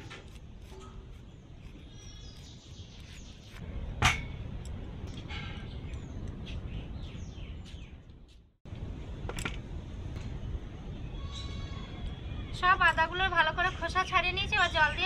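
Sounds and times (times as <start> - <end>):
outdoor background hum: 0.0 - 15.0
birds chirping: 0.8 - 3.7, 5.1 - 8.5, 10.2 - 15.0.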